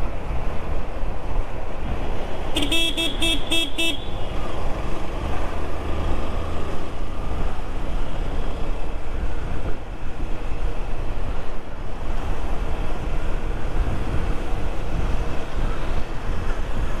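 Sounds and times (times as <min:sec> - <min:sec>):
motorcycle road noise: 0:00.0 - 0:17.0
vehicle horn beeps: 0:02.6 - 0:04.2
wind on microphone: 0:08.2 - 0:17.0.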